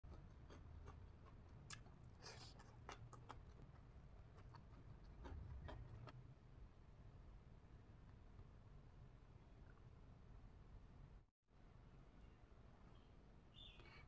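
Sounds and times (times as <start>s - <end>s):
person chewing food: 0.1s - 6.2s
low room hum: 0.1s - 14.0s.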